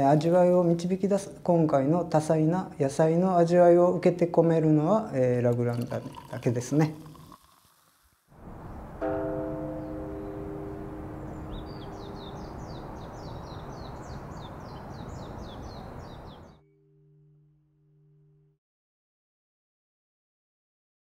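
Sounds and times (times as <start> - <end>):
bird twittering: 11.2 - 16.6.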